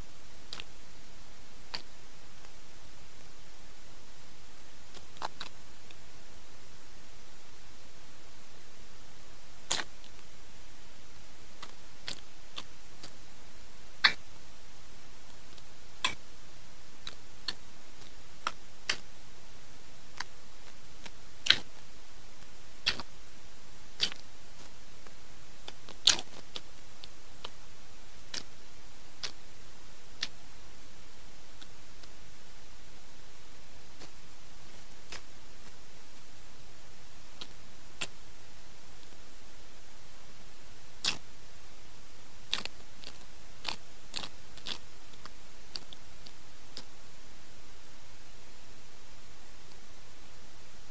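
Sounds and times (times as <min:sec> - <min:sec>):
soft sticky clicks of hand mixing food: 0:00.0 - 0:00.8, 0:04.5 - 0:06.0, 0:09.7 - 0:10.3, 0:11.6 - 0:13.2, 0:17.0 - 0:19.1, 0:19.7 - 0:23.2, 0:24.0 - 0:28.6, 0:29.2 - 0:29.4, 0:30.2 - 0:30.6, 0:31.6 - 0:32.2, 0:33.9 - 0:36.3, 0:37.3 - 0:38.2, 0:41.0 - 0:41.3, 0:42.5 - 0:48.0
steady hiss: 0:00.0 - 0:50.9
rice squeezed between fingers: 0:09.7 - 0:09.9.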